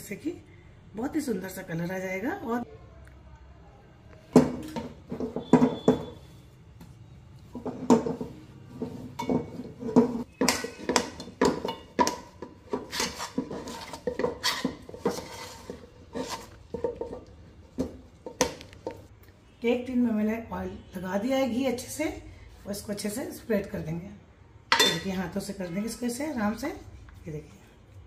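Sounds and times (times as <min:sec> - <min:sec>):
spoon scraping metal pan: 0:07.6 - 0:19.0.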